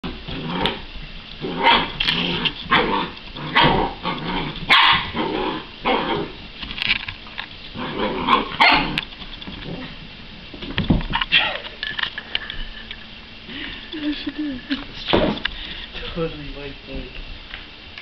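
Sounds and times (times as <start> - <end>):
small dog barking and growling: 1.4 - 6.4, 7.8 - 9.0.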